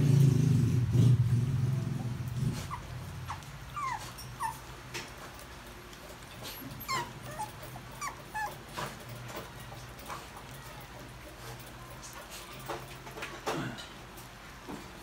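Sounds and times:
puppies whimpering: 0:02.0 - 0:11.2.

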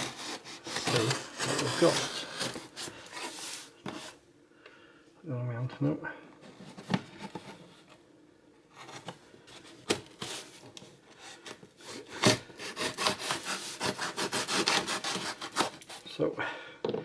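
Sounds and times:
knife scraping cardboard packaging: 0:00.0 - 0:04.2, 0:11.3 - 0:16.1.

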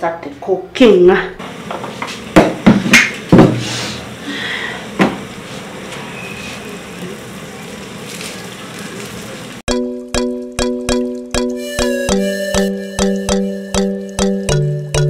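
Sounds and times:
onions hissing in pot: 0:03.6 - 0:09.6.

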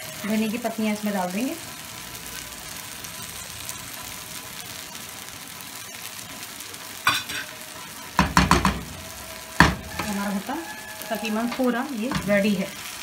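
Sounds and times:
food sizzling in a pan: 0:00.0 - 0:13.0
spoon knocking in pan: 0:07.0 - 0:09.0, 0:09.6 - 0:10.2, 0:11.1 - 0:12.6.

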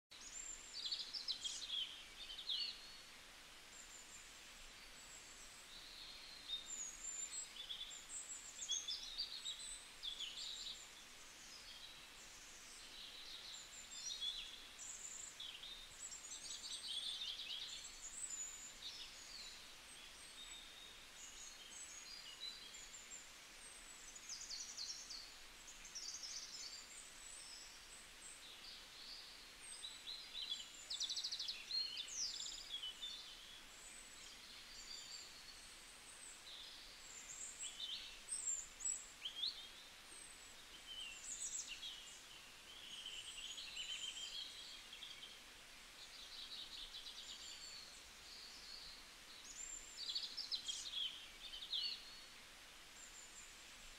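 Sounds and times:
faint steady hiss: 0:00.1 - 0:53.9.

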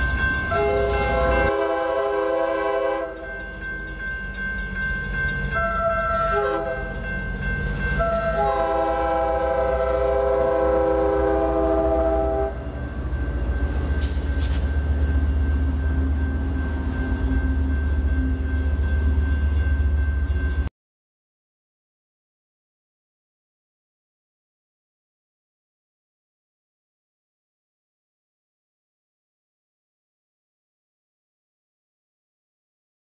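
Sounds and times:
locomotive air horn blasts: 0:00.5 - 0:03.3, 0:05.6 - 0:06.9, 0:08.0 - 0:12.6.

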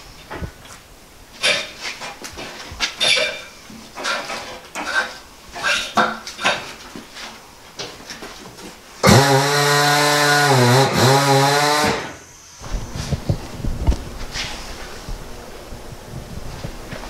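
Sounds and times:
metal clanks and scrapes: 0:01.4 - 0:07.4
turntable motor humming: 0:12.6 - 0:17.0.

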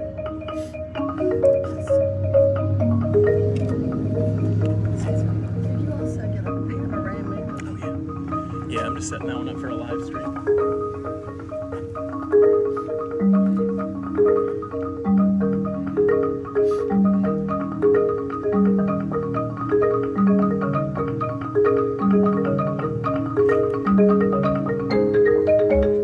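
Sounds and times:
low ringing marimba note: 0:00.0 - 0:26.0
marimba mallet strokes: 0:00.0 - 0:26.0.

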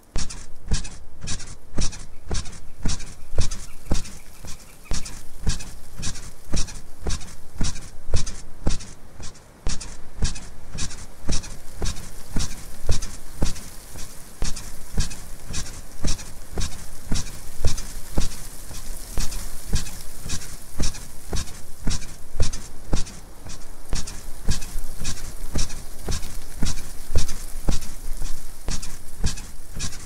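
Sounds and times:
bed squeaking rhythmically: 0:00.1 - 0:30.0.

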